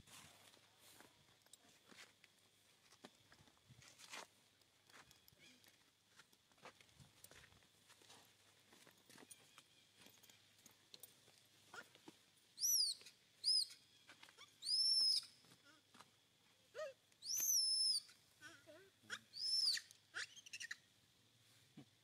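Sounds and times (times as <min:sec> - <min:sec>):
monkey high-pitched squeals: 0:12.6 - 0:13.8, 0:14.4 - 0:15.3, 0:16.8 - 0:20.8
fainter lower monkey calls: 0:12.6 - 0:15.9, 0:16.7 - 0:20.9.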